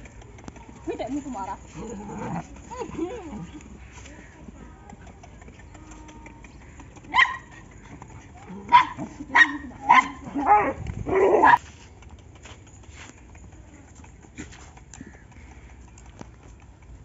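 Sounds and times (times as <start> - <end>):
dog barking: 7.1 - 7.6, 8.7 - 11.6.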